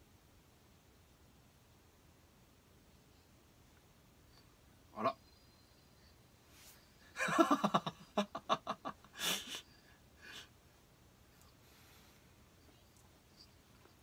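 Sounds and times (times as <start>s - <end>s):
man laughing: 7.2s - 9.6s.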